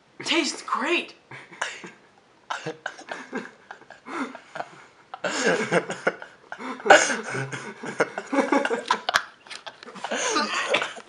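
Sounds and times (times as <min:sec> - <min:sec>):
person laughing: 0:01.3 - 0:11.0
person coughing: 0:02.5 - 0:03.2, 0:06.9 - 0:07.5.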